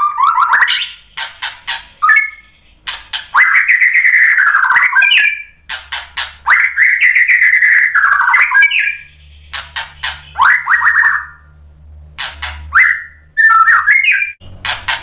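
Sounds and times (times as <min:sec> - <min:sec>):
songbird clicking and warbling: 0:00.3 - 0:11.4, 0:12.2 - 0:15.0.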